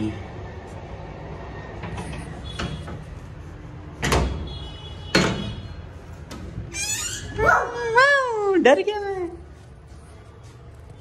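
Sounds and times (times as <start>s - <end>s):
dog whining: 6.7s - 8.0s.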